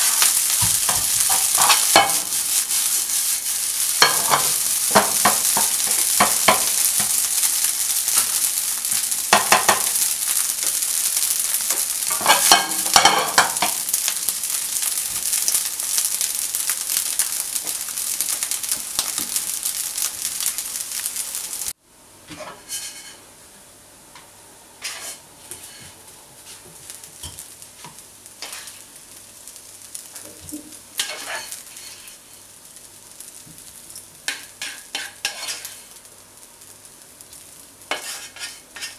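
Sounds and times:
spatula stirring and scraping pan: 0.0s - 15.6s, 22.3s - 23.2s, 24.8s - 29.0s, 31.0s - 32.4s, 33.6s - 36.0s, 37.8s - 38.9s
rice sizzling in a pan: 0.0s - 23.7s, 24.3s - 38.9s.

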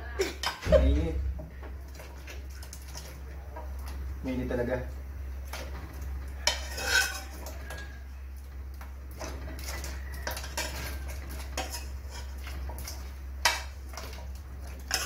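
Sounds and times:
metal utensil scraping a pot: 5.5s - 8.1s, 9.1s - 15.0s.

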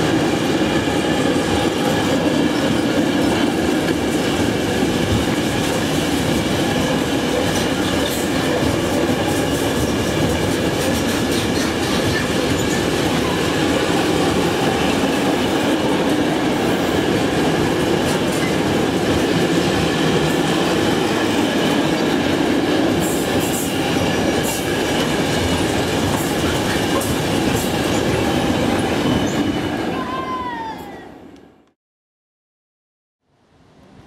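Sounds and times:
freight train wheels rumbling on rails: 0.0s - 31.6s.

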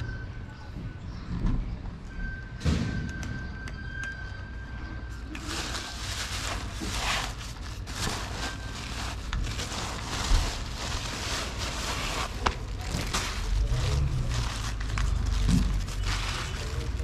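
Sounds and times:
steady low rumble: 5.1s - 17.0s
cat crunching dry kibble: 12.2s - 17.0s.

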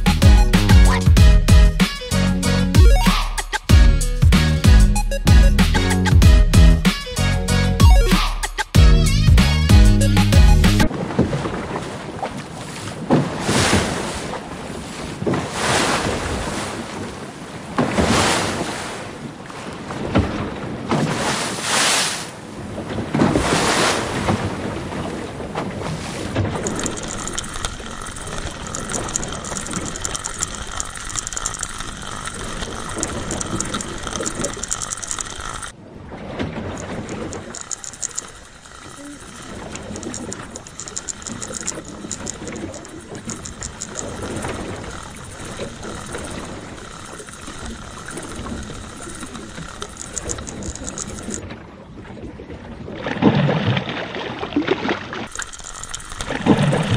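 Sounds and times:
high chirring with fast ticking: 0.0s - 10.9s, 26.5s - 35.8s, 36.8s - 51.4s, 55.3s - 56.9s
water washing in like waves: 10.8s - 56.9s.

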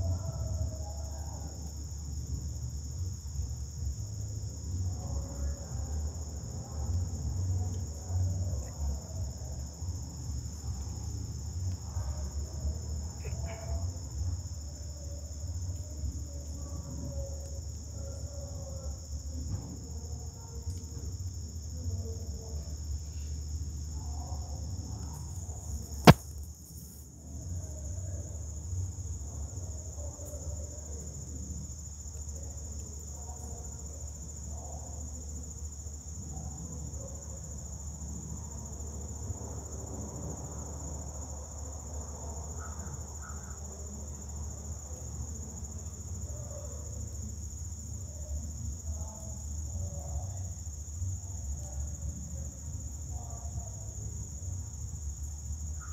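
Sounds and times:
insect chorus drone: 0.0s - 55.9s
sharp click: 26.1s - 26.3s.

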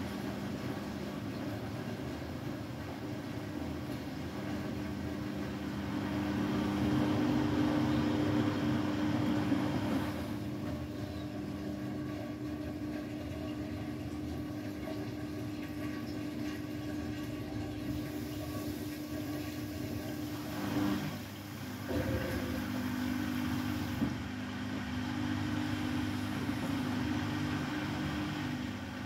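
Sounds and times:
washing machine motor hum: 0.0s - 29.0s
water sloshing in washing machine: 0.0s - 29.0s.

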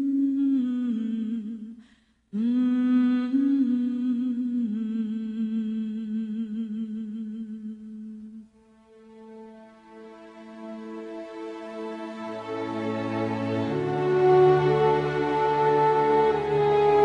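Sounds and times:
person humming a slow melody: 2.4s - 8.5s.

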